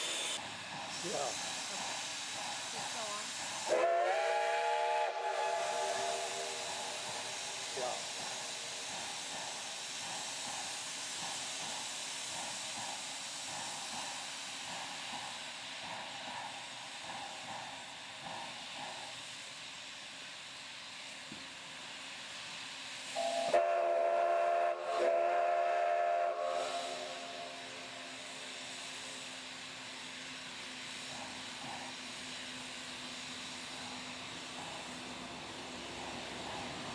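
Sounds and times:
faint steam engine pulsing: 0:00.0 - 0:36.9
steam hissing: 0:00.0 - 0:36.9
steam locomotive whistle blasts: 0:03.6 - 0:07.7, 0:23.1 - 0:28.1.

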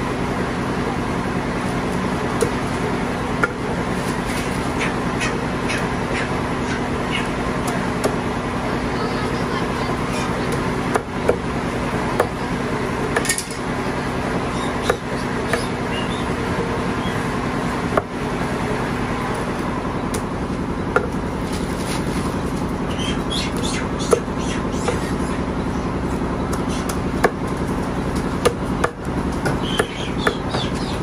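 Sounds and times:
steady mechanical hum: 0:00.0 - 0:31.0
cleaver chopping on wooden block: 0:14.8 - 0:15.7, 0:28.4 - 0:30.7.

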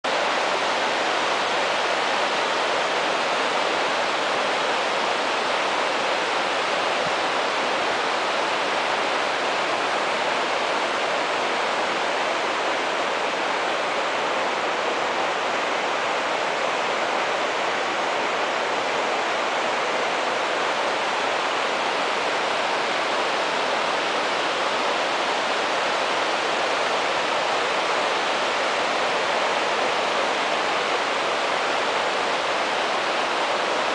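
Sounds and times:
waterfall rushing: 0:00.1 - 0:33.9.

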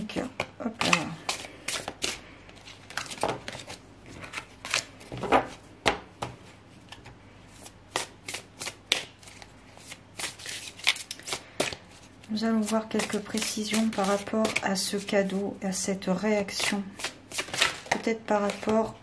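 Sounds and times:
cards shuffled by hand: 0:06.9 - 0:11.9, 0:12.6 - 0:15.4, 0:16.6 - 0:18.8.

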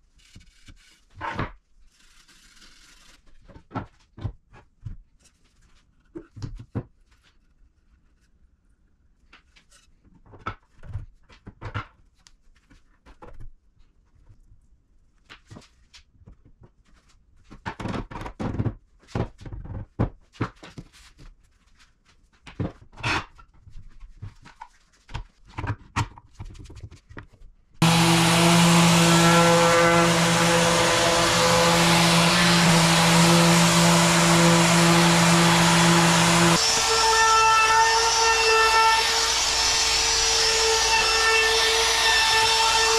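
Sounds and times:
router running loudly: 0:27.8 - 0:42.9.

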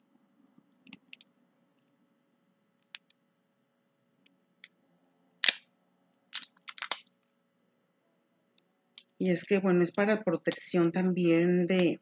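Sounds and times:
plastic film clicks and crackles: 0:05.4 - 0:05.7, 0:06.3 - 0:07.2.

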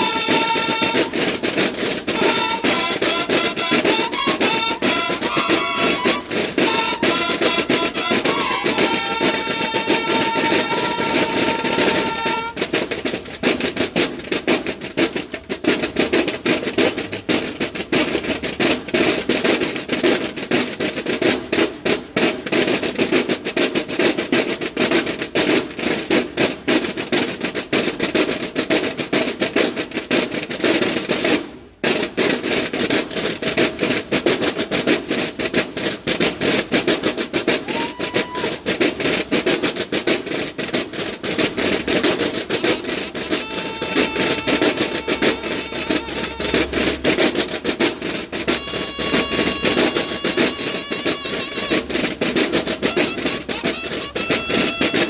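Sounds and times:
snare drum line playing cadence: 0:00.0 - 0:55.0.

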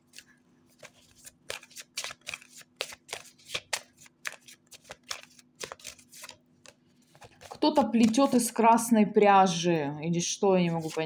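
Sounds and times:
cards being shuffled: 0:00.0 - 0:08.5, 0:10.7 - 0:11.0.

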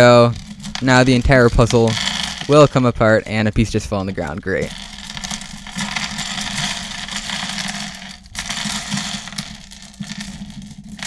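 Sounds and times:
pieces clattering onto table: 0:00.0 - 0:02.8, 0:04.5 - 0:11.0
plastic pieces clicking and rattling: 0:00.0 - 0:11.0.

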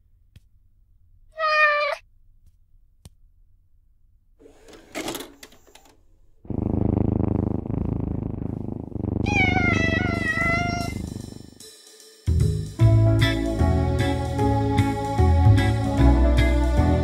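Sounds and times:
tape clattering into vcr: 0:04.5 - 0:06.0
cat purring: 0:06.4 - 0:11.6.

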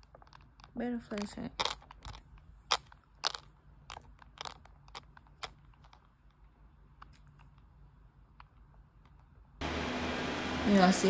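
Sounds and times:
phone handling clicks and rustles: 0:00.0 - 0:07.7.

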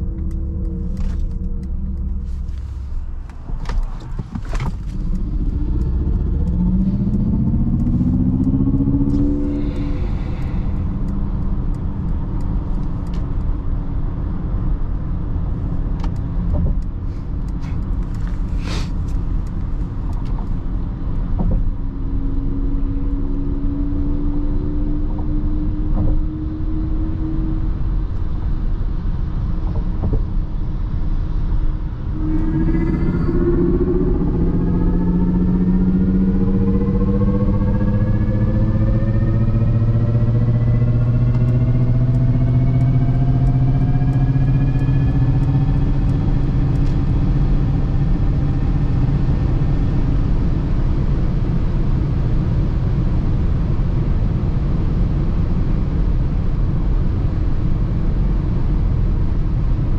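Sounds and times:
road and tyre rumble: 0:00.0 - 0:59.9
electric car tone rising: 0:04.5 - 0:11.8, 0:32.0 - 0:51.5.

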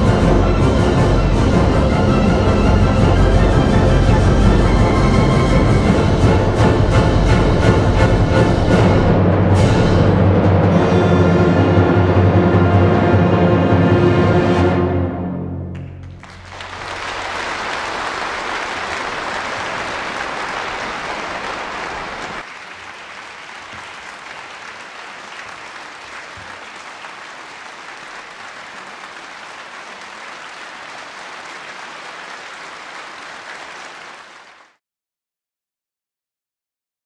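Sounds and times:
audience applauding: 0:15.7 - 0:34.8.

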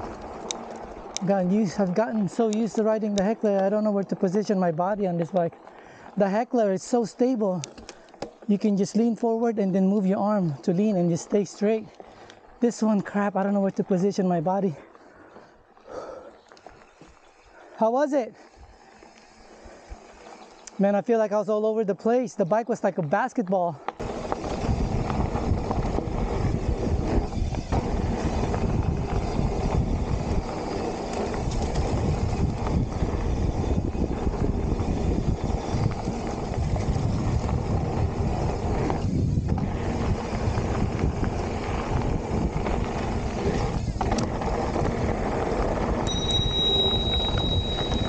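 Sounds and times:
mountain bike rolling on dirt: 0:00.0 - 0:48.0
disc brakes squealing: 0:16.4 - 0:20.8, 0:24.0 - 0:48.0
wind on microphone: 0:24.0 - 0:48.0.

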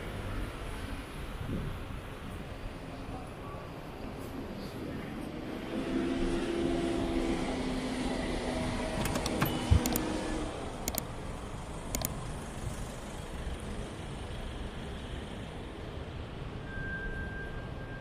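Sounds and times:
city road traffic: 0:00.0 - 0:18.0
sharp clicks: 0:09.0 - 0:10.1, 0:10.8 - 0:11.1, 0:11.9 - 0:12.3.

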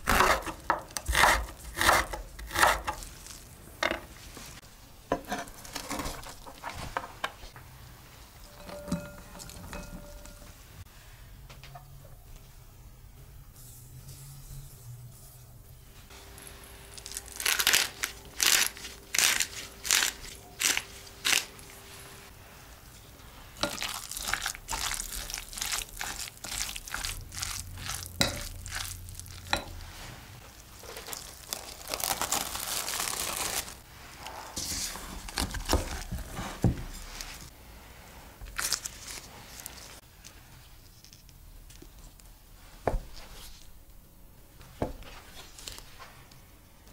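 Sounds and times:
sharp crunching strokes: 0:16.9 - 0:21.7, 0:23.6 - 0:29.6
spoon stirring minced meat: 0:23.6 - 0:29.8.

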